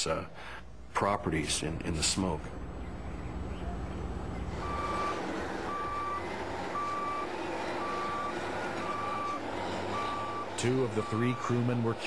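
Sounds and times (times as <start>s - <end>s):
bulldozer running noise: 0.3s - 12.0s
bulldozer backup alarm beeping: 4.6s - 12.0s.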